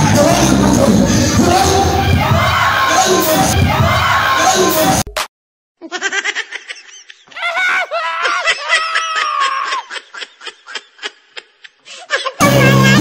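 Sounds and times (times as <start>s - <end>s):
loud crowd noise: 0.0s - 5.0s
bursts of laughter: 5.8s - 13.0s.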